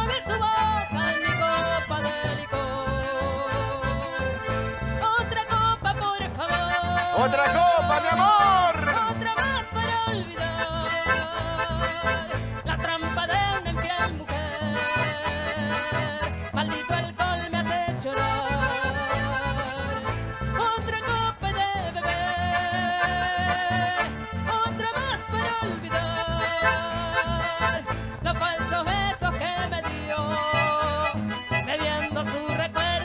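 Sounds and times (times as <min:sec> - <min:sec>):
accordion melody: 0:00.0 - 0:33.0
guitar: 0:00.0 - 0:33.0
steady bass beat: 0:02.5 - 0:14.5.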